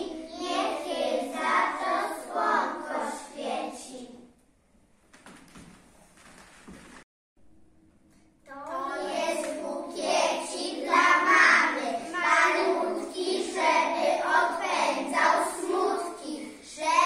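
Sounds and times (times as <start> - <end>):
children singing together: 0.0 - 4.0, 8.6 - 17.0.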